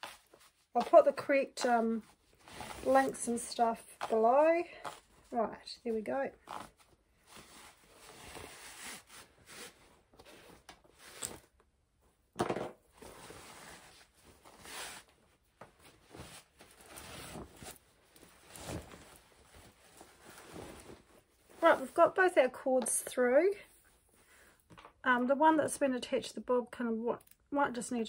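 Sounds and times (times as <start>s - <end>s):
fabric rustling and scraping: 0.0s - 11.6s, 12.9s - 22.3s.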